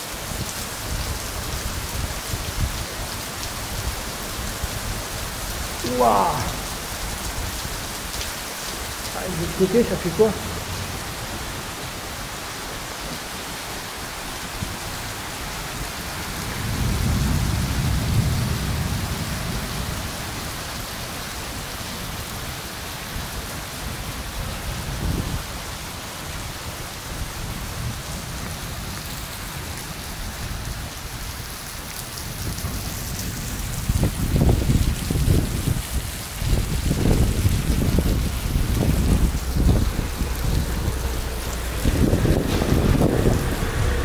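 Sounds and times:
heavy rain on cobblestones: 0.0s - 44.0s
thunder rumbling: 3.8s - 8.1s, 9.0s - 12.3s, 16.4s - 20.4s, 32.3s - 44.0s.

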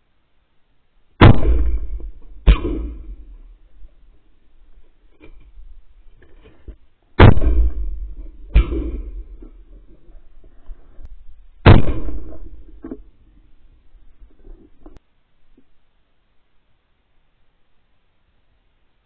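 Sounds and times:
shotgun shots: 1.2s - 3.7s, 7.2s - 9.9s, 11.6s - 13.1s.

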